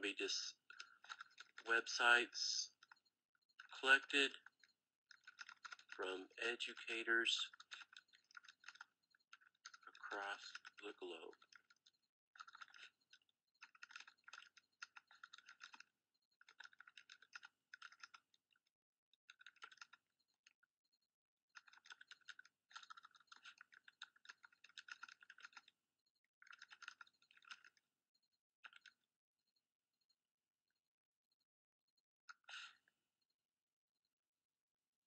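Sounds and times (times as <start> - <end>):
typing on computer keyboard: 0.0 - 2.0, 2.7 - 20.8, 21.5 - 27.9, 28.6 - 29.1.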